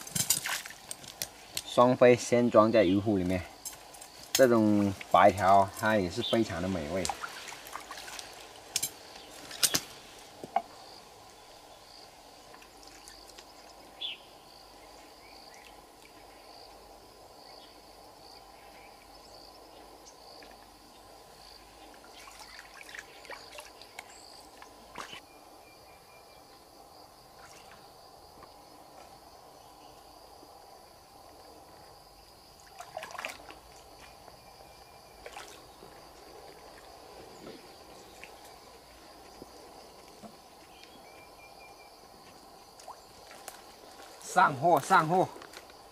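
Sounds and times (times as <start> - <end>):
knocks and splashes in water: 0.0 - 1.2, 6.4 - 8.9, 22.1 - 24.1, 32.6 - 34.1, 35.2 - 36.0
splashing and rustling: 0.0 - 1.8, 3.1 - 10.7, 12.4 - 13.8, 21.8 - 25.2, 32.6 - 34.4, 35.2 - 40.9, 42.2 - 45.8
insects chirring: 0.0 - 45.9.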